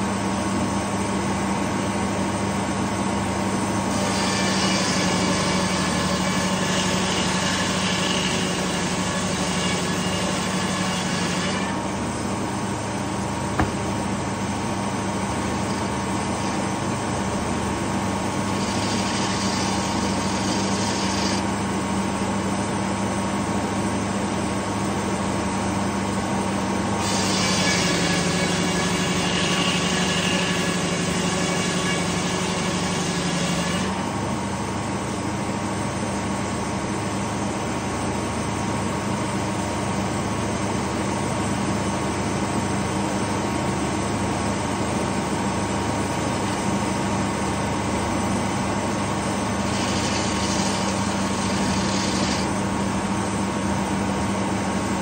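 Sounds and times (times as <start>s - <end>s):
saw blade cutting log: 3.8s - 12.2s, 13.5s - 22.2s, 27.0s - 34.2s, 49.0s - 53.4s.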